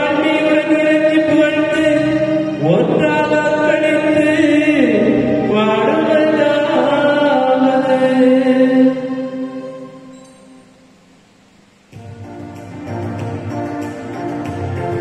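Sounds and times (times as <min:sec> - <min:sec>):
voices singing a hymn: 0:00.0 - 0:10.2.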